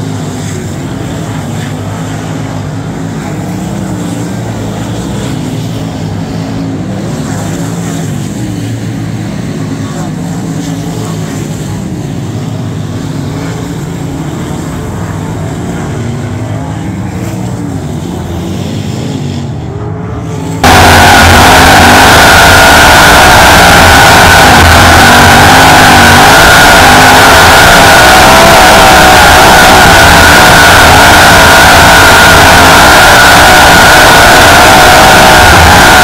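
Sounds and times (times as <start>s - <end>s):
race car engines revving: 19.7s - 36.0s.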